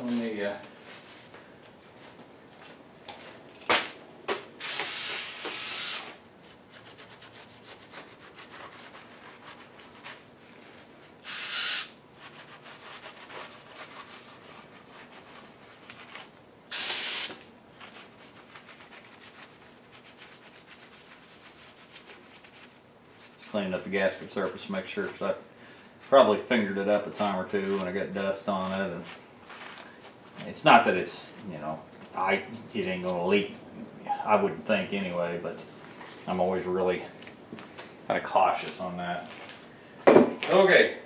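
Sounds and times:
aerosol spray hissing: 4.6s - 6.1s, 11.2s - 11.9s, 16.7s - 17.4s.

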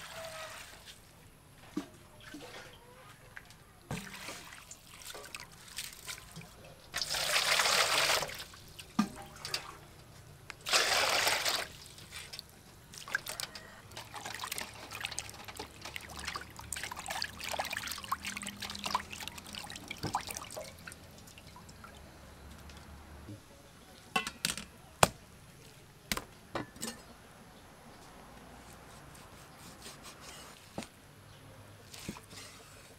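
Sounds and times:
small water splashes: 3.4s - 9.9s, 10.6s - 23.0s
water pouring into metal basin: 7.0s - 9.8s, 10.6s - 12.1s, 13.0s - 22.0s
hands squeezing meat in water: 10.6s - 21.5s.

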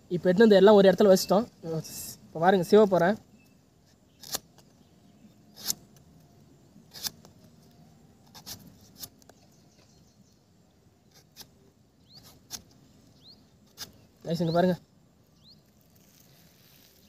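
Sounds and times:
machete chopping fruit husk: 4.1s - 4.6s, 12.2s - 12.8s, 13.6s - 14.0s.

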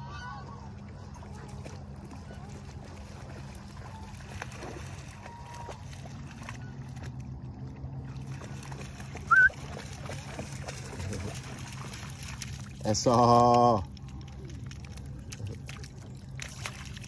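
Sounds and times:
dog splashing in water: 1.2s - 7.3s, 8.0s - 17.0s
short high chirp: 9.3s - 9.5s.

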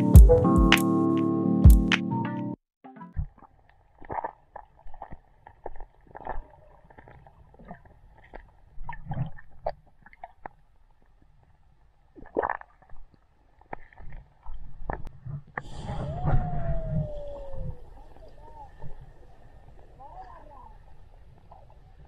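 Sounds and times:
low underwater rumble: 14.8s - 22.0s.

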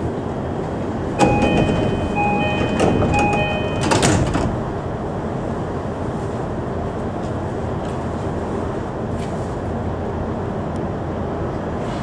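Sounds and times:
train humming: 0.0s - 12.0s
two-note door chime: 1.2s - 4.2s
sliding doors shutting: 1.2s - 4.8s.

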